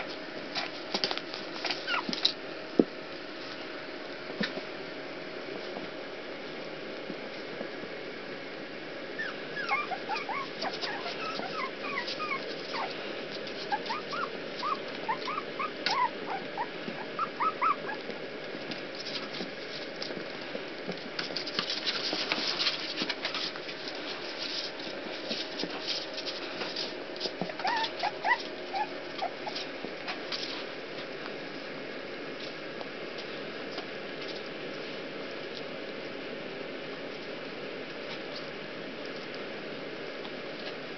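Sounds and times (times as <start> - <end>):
scratching and rustling: 0.0 - 2.4, 9.6 - 31.7
puppies whimpering: 1.8 - 2.2, 9.2 - 13.0, 13.6 - 18.0, 27.5 - 29.7.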